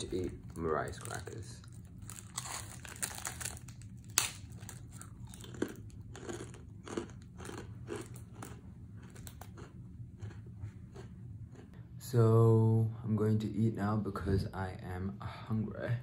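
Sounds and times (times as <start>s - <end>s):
person crunching rice cracker: 0.0s - 11.7s.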